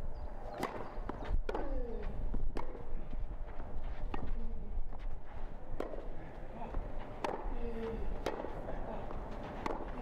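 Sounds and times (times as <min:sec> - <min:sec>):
tennis ball struck by rackets: 0:00.5 - 0:01.7, 0:05.8 - 0:06.1, 0:07.2 - 0:07.5, 0:08.2 - 0:08.6, 0:09.6 - 0:10.0.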